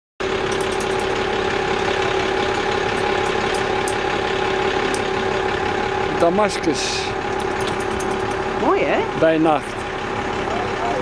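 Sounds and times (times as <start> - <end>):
engine idling: 0.2 - 11.0.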